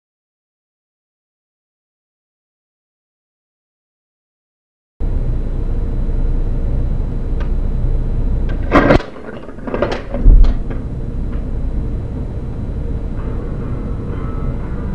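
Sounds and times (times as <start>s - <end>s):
curling iron dropped knocking: 8.5s - 11.4s.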